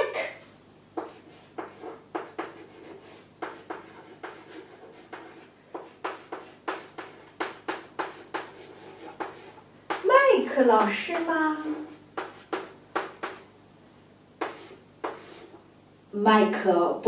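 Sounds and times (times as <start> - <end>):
chalk scratching on chalkboard: 1.0 - 10.1, 10.7 - 13.5, 14.4 - 15.6.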